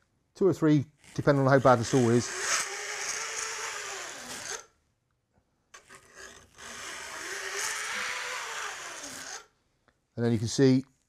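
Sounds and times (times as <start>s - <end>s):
file scraping saw teeth: 1.0s - 4.7s, 5.8s - 9.5s.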